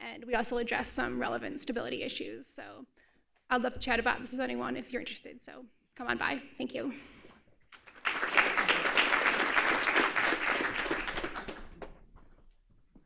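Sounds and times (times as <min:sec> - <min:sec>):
audience applauding: 0:07.7 - 0:12.0.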